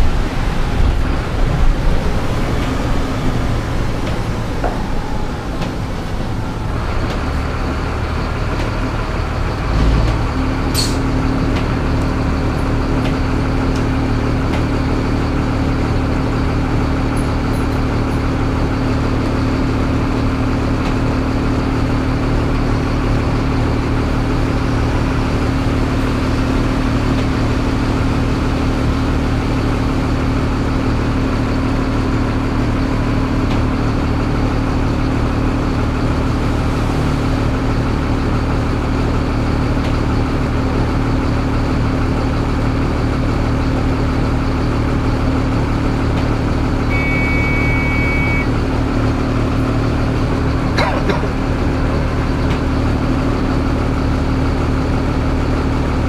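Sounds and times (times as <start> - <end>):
bus diesel engine idling: 0.0 - 56.0
short electronic beep: 46.9 - 48.5.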